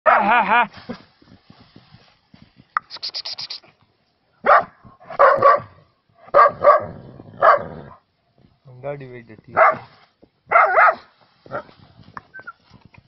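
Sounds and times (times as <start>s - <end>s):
short high clicks: 2.8s - 3.7s
dog barking: 4.4s - 8.0s, 9.6s - 9.9s, 10.5s - 11.7s.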